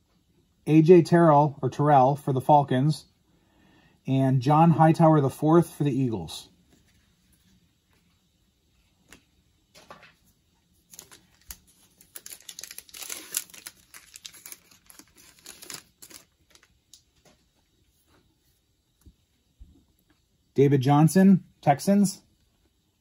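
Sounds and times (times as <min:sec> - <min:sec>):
foil wrapper crinkling: 0:10.9 - 0:17.0.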